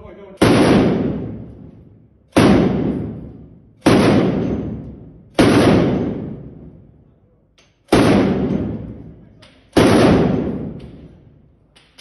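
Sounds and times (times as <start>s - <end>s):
machine gun single shots: 0.4s - 1.5s, 2.3s - 6.5s, 7.9s - 8.9s, 9.7s - 10.8s.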